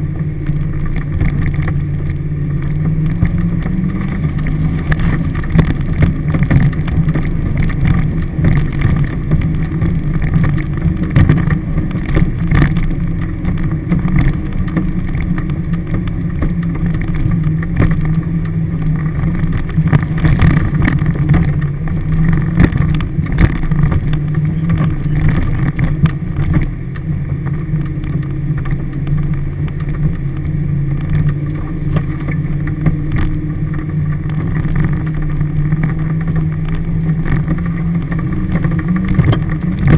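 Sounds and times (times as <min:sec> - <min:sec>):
car engine running at low speed: 0:00.0 - 0:39.9
vehicle knocks and rattles: 0:00.0 - 0:39.9.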